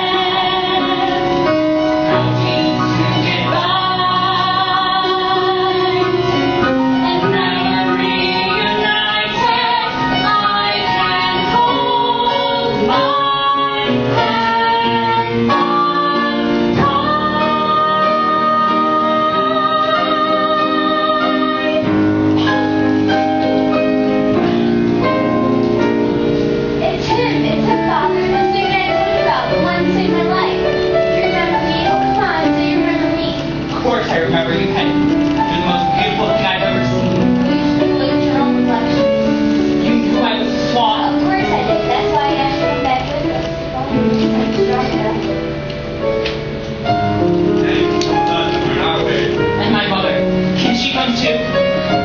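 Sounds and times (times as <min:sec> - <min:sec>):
woman singing: 0:00.0 - 0:01.5, 0:02.1 - 0:06.4, 0:07.0 - 0:22.7
backing music held chords: 0:00.0 - 0:52.0
instrumental accompaniment: 0:00.0 - 0:52.0.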